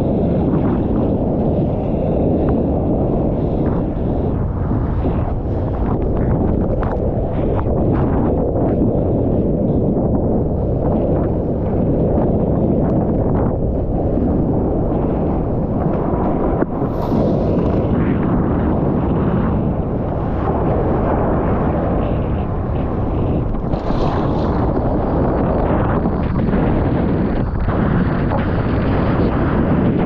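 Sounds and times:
wind buffeting microphone: 0.0s - 30.0s
ocean surf: 13.6s - 30.0s.

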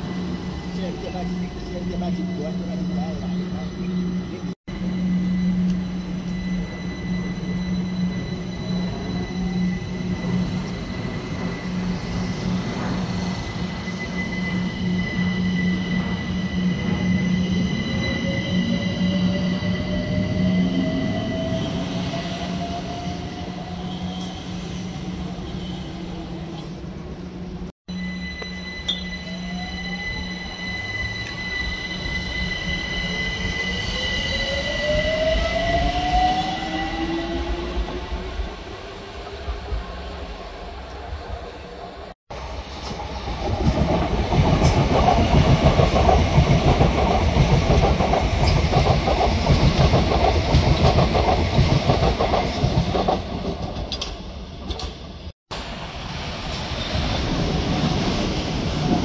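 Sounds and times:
train wheels rumbling: 42.3s - 59.0s.

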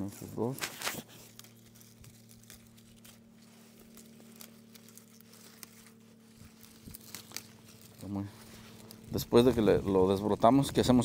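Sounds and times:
faint steady hum: 0.0s - 11.0s
leaves rustling: 0.0s - 11.0s
vine shoots snapping: 0.5s - 8.2s.

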